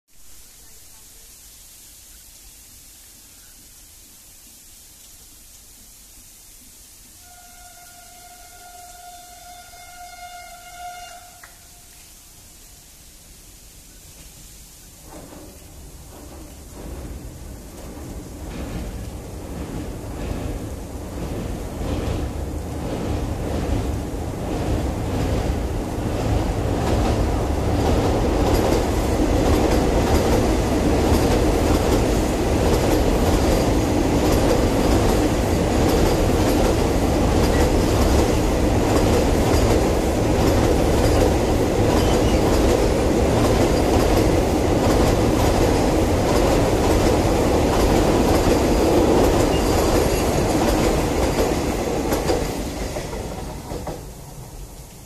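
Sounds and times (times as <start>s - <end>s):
train wheels rumbling on rails: 14.2s - 55.0s.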